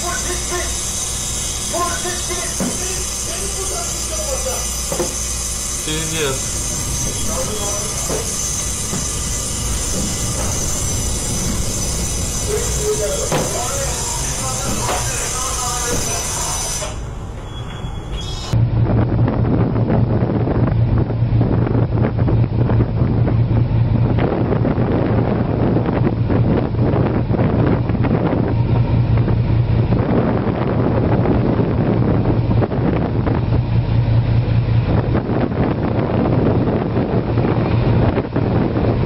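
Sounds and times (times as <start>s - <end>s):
water rushing along hull: 0.0s - 17.0s
low engine hum: 0.0s - 39.0s
wind buffeting microphone: 0.0s - 39.0s.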